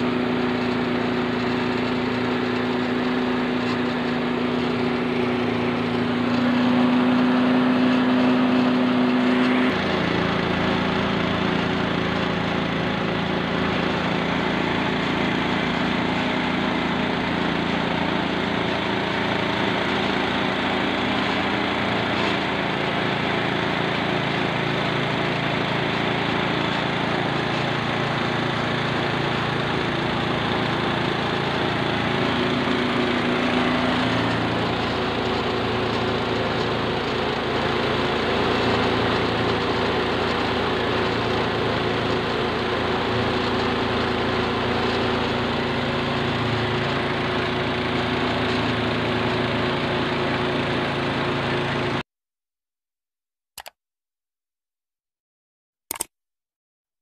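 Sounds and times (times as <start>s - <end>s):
rice mill milling: 0.0s - 52.0s
small petrol engine running: 0.0s - 52.0s.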